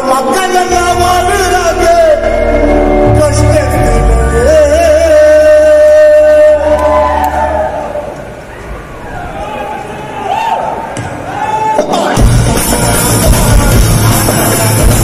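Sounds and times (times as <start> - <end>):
person singing: 0.0 - 7.6, 12.0 - 15.0
live band bass and drums: 11.8 - 15.0.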